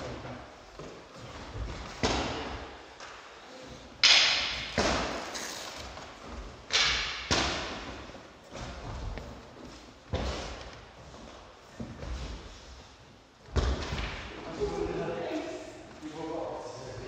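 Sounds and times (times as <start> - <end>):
sparring sticks striking: 3.9 - 5.8, 6.6 - 8.0.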